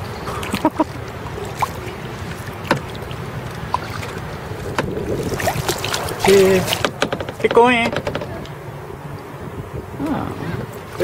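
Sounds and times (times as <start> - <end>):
paddle splashing in water: 0.0 - 8.4
steady low rumble: 0.0 - 11.0.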